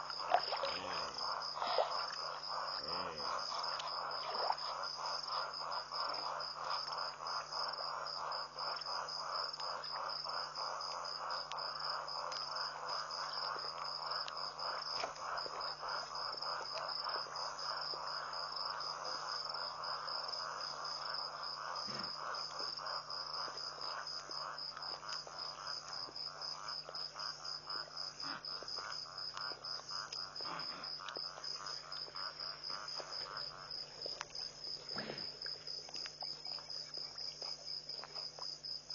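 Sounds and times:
cricket trill: 0.0s - 38.9s
pulsing insect chorus: 0.0s - 38.9s.

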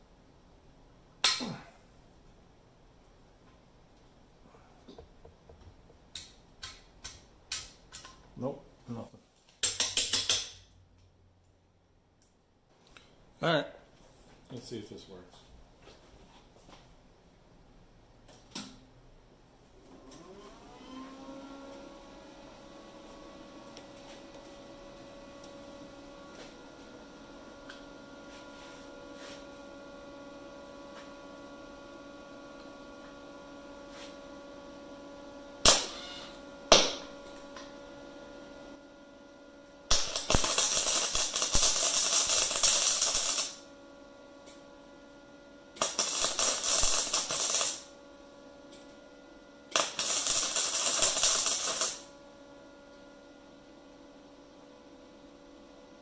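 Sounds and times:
steady hum: 22.0s - 56.0s
welder arc crackling: 35.6s - 37.8s, 39.9s - 43.7s, 45.7s - 49.0s, 49.7s - 52.2s.

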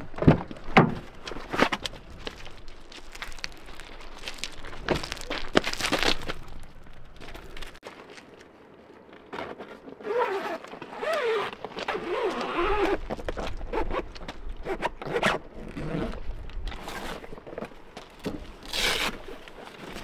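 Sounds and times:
zipper being pulled open: 10.0s - 17.3s, 18.7s - 19.3s.

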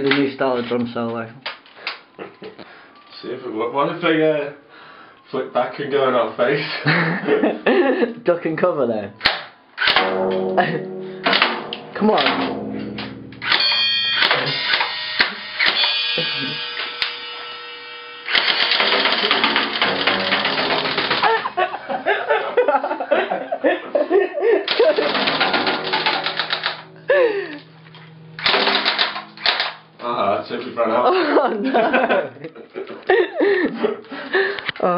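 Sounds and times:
cymbals ringing: 10.0s - 17.5s
airsoft gun automatic bursts: 18.3s - 21.5s, 24.7s - 26.8s, 28.4s - 29.8s.

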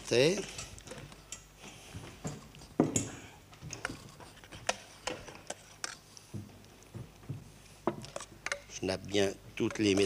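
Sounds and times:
metal ladle clinking on dishes: 9.6s - 10.0s.

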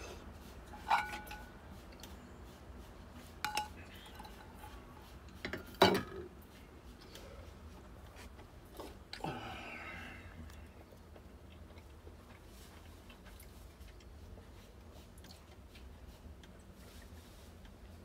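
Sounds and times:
utensils clinking against dishes: 0.7s - 1.5s.

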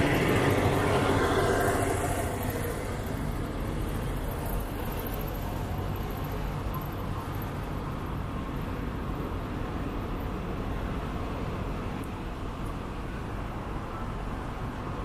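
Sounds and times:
distant road traffic rumble: 0.0s - 15.0s.

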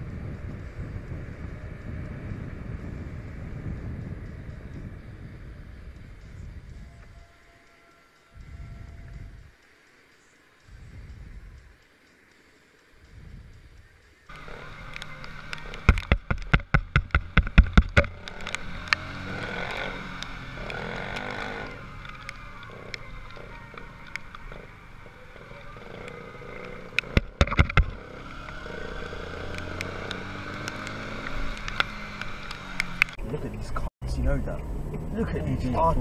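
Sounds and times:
motorcycle engine running: 0.0s - 7.2s, 13.0s - 33.9s
wind noise: 0.0s - 7.5s, 8.3s - 9.6s, 10.6s - 11.9s, 13.0s - 25.9s, 26.5s - 36.0s
sharp knocks: 15.8s - 18.2s, 27.0s - 28.0s.

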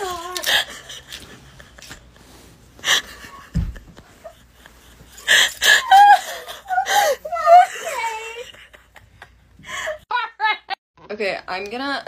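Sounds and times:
woman laughing: 2.8s - 10.8s
dull low thump: 3.5s - 4.0s.

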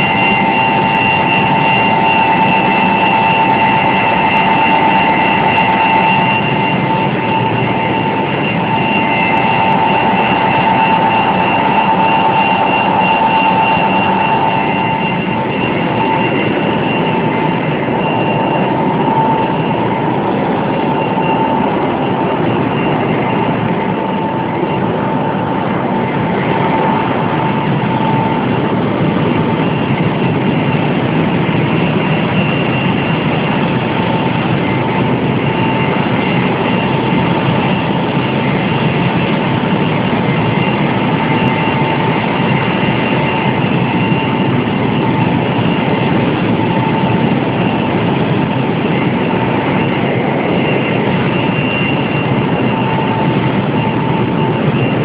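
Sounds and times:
high machinery whine: 0.0s - 55.0s
water rushing through cooling tower: 0.0s - 55.0s.

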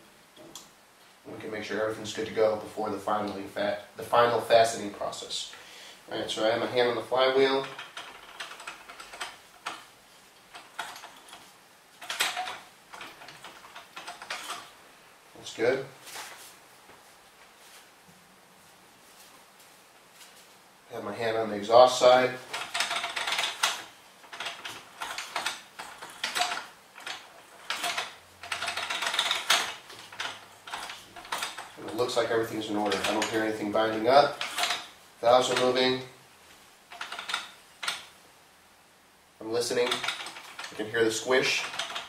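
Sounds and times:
engine turned by hand clicking: 7.5s - 9.9s, 10.5s - 11.4s, 12.0s - 14.7s, 22.4s - 35.8s, 36.9s - 38.1s, 39.8s - 42.0s.

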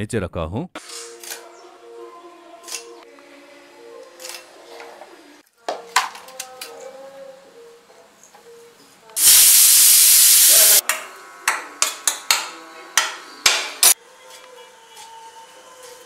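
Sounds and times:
vegetables sizzling in oil: 9.2s - 10.8s.

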